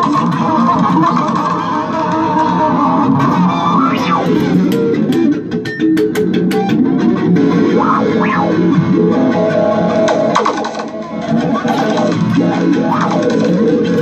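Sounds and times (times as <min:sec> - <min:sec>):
experimental electric guitar: 0:00.0 - 0:14.0
sustained guitar tones: 0:00.0 - 0:14.0
sliding pitch sweep: 0:06.9 - 0:10.6.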